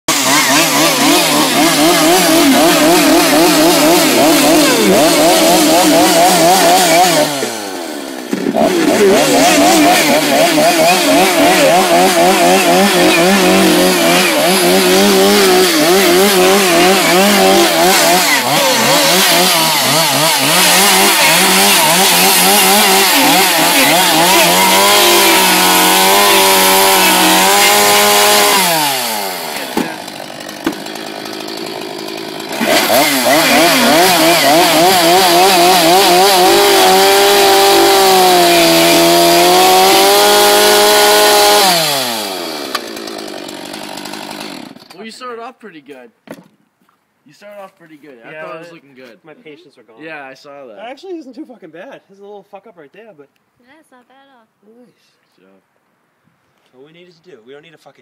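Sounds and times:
chainsaw revving: 0.0s - 45.0s.

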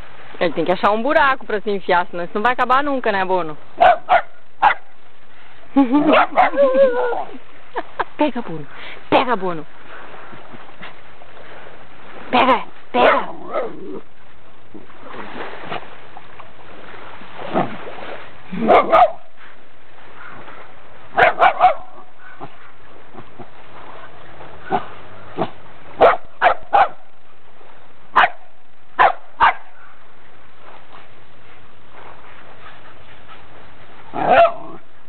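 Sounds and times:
dog barking sharply: 3.8s - 4.9s, 18.7s - 19.2s, 21.2s - 21.9s, 26.0s - 27.0s, 28.2s - 28.4s, 29.0s - 29.7s, 34.2s - 34.6s.

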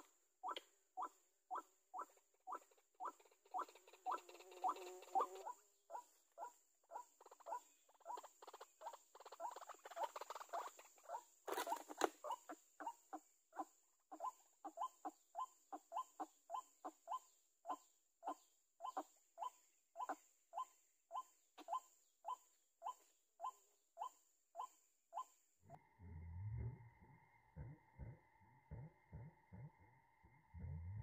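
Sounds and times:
waterhen calls: 0.0s - 17.2s
rustle: 8.3s - 12.6s.

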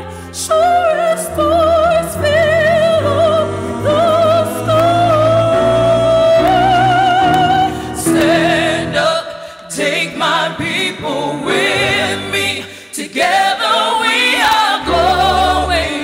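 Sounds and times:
upright bass cello and piano: 0.0s - 9.1s
several voices singing together: 0.3s - 16.0s.

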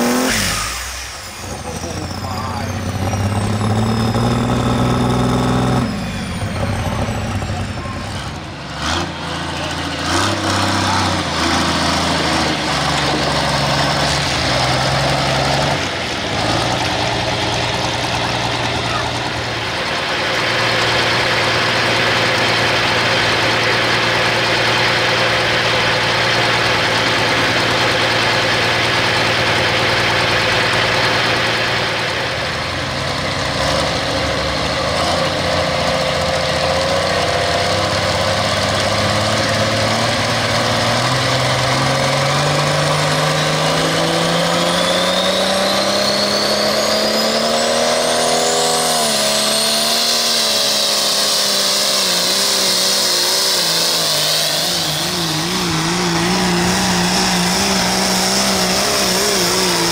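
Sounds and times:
diesel engine revving: 0.0s - 59.9s
turbo whine: 41.2s - 59.9s.

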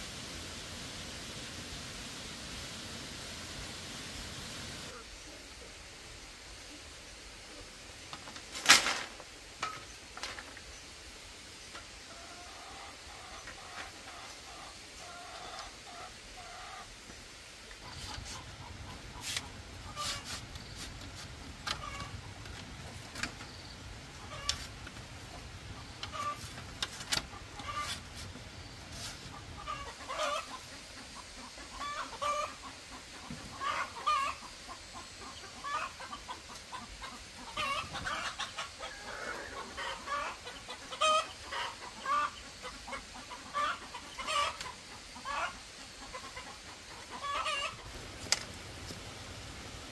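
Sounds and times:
chickens clucking: 11.6s - 17.0s, 17.6s - 48.5s.

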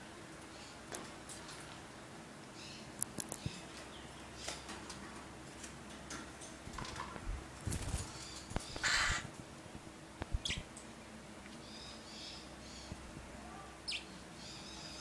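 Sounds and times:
parrot harsh call: 8.8s - 9.3s.

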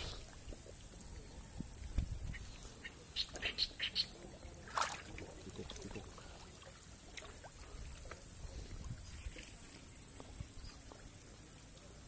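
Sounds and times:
water sloshing: 1.9s - 11.4s.

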